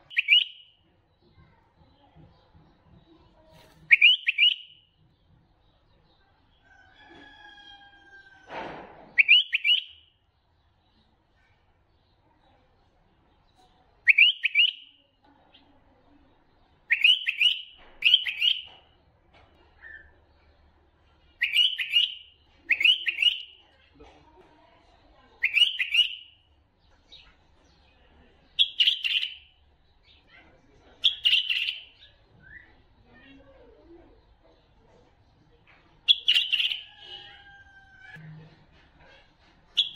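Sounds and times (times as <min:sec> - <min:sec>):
bulbul song: 0:00.0 - 0:00.9, 0:03.8 - 0:05.0, 0:09.2 - 0:10.2, 0:14.1 - 0:15.1, 0:16.9 - 0:18.8, 0:21.4 - 0:23.6, 0:25.4 - 0:26.5.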